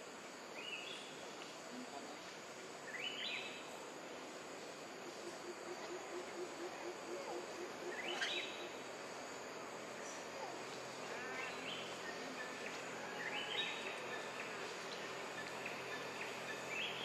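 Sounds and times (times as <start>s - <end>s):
insect drone: 0.0s - 17.0s.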